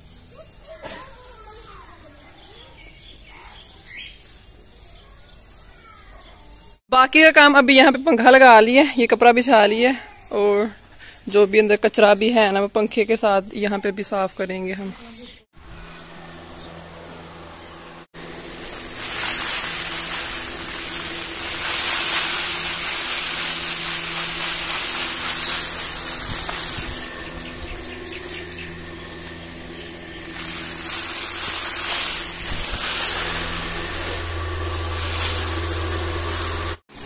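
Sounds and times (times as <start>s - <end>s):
electric fan running: 15.6s - 37.0s
seeds pouring from metal bowl: 18.2s - 28.1s, 29.2s - 36.8s.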